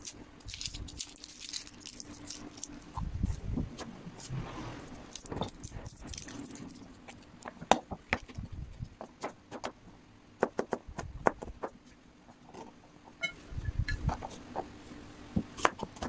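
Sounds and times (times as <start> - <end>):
knife chopping on plastic board: 15.4 - 16.0.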